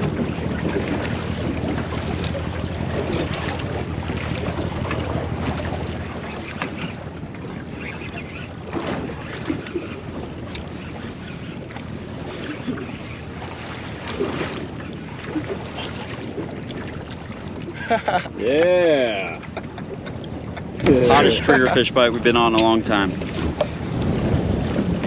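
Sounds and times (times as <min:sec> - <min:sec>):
wind buffeting microphone: 0:00.0 - 0:07.9, 0:08.6 - 0:25.0
water washing: 0:20.7 - 0:23.8.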